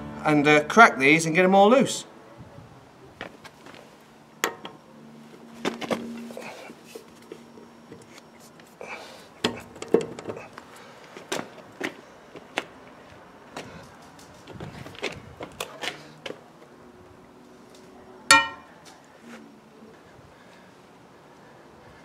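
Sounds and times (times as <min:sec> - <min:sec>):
loud ringing metallic clang: 0:18.3 - 0:18.8.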